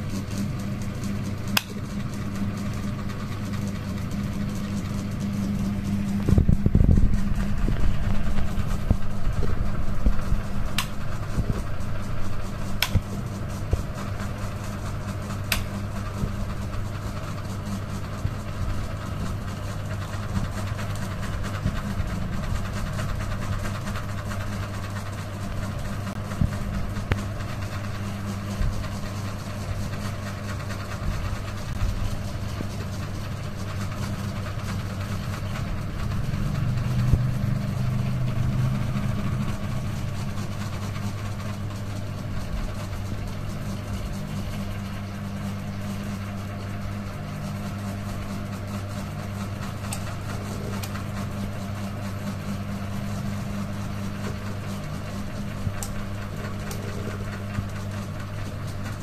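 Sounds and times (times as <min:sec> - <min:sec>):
ceiling fan motor hum: 0:00.0 - 0:59.0
sharp click: 0:10.8 - 0:11.0, 0:12.8 - 0:13.1.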